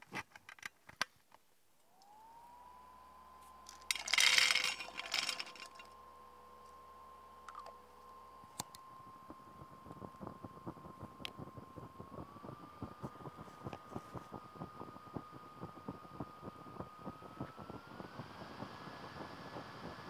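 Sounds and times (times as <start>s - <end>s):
stove fan whining: 1.6s - 20.0s.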